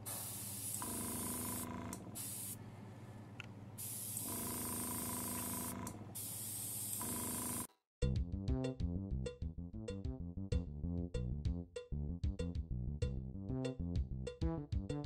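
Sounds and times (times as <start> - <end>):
airbrush spraying hiss: 0.0 - 1.6, 2.2 - 2.6, 3.8 - 4.3, 5.2 - 7.1.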